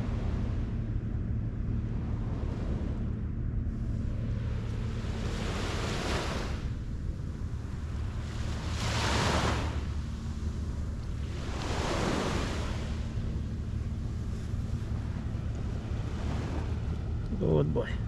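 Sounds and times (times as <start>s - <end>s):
wind rumble on microphone: 0.0s - 18.0s
waves washing onto beach: 3.8s - 18.0s.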